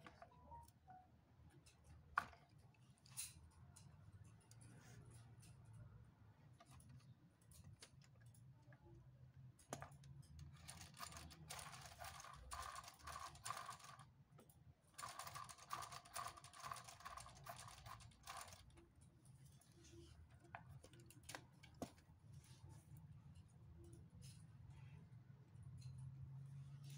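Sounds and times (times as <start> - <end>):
plastic gears clattering: 9.8 - 14.1, 15.0 - 18.8.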